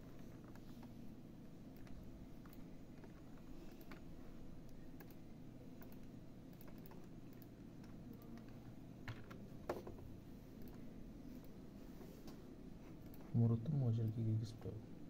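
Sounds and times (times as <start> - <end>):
low room hum: 0.0 - 15.0
keyboard and mouse clicks: 1.7 - 4.1, 4.7 - 10.8.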